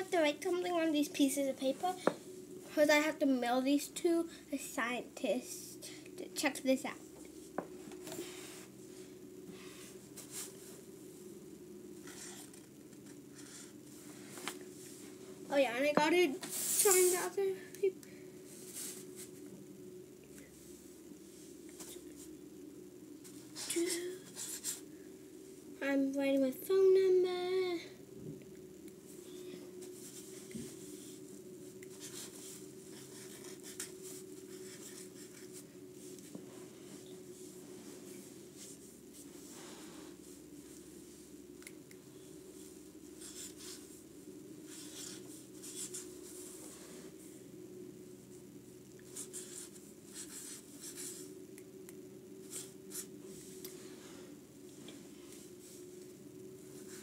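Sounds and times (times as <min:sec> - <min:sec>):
steady low hum: 0:00.0 - 0:57.0
marker scratching on paper: 0:31.9 - 0:35.6, 0:43.2 - 0:43.9, 0:44.7 - 0:46.1, 0:49.1 - 0:51.3, 0:52.5 - 0:53.1.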